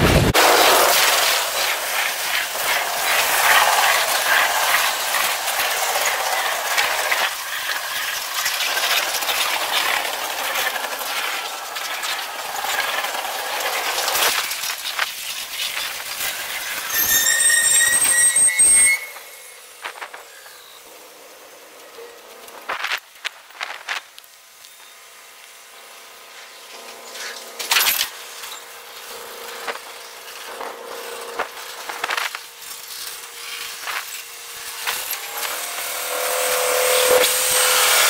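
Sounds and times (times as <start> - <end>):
freight cars wheel clatter: 0.0 - 18.2
wheel squeal: 0.7 - 14.6, 15.3 - 20.8.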